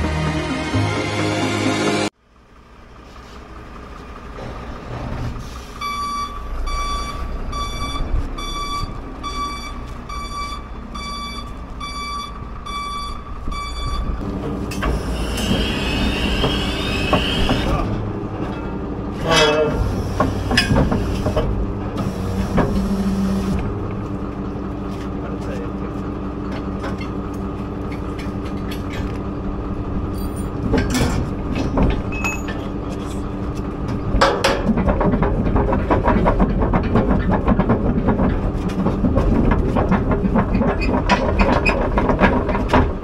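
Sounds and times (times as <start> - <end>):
truck engine running: 0.1 - 43.0
back-up alarm beeping: 5.8 - 14.2
metal clanks and knocks: 14.2 - 22.8, 26.4 - 29.4, 30.1 - 43.0.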